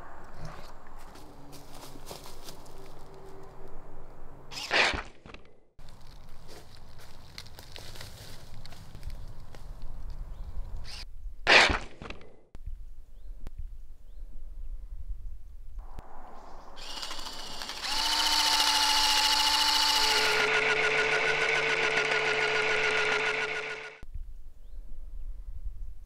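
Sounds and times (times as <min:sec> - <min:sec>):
small electric motor whirring: 0:16.8 - 0:24.0.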